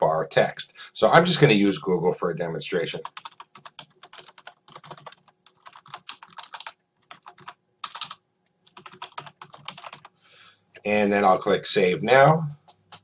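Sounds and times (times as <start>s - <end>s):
computer keyboard typing: 3.0s - 10.2s, 12.6s - 13.0s.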